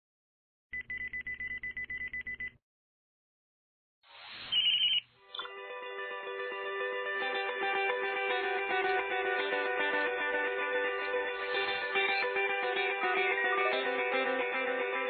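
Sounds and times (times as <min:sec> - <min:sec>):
high electronic chirp: 0:04.4 - 0:05.5
plucked guitar music: 0:05.5 - 0:15.0.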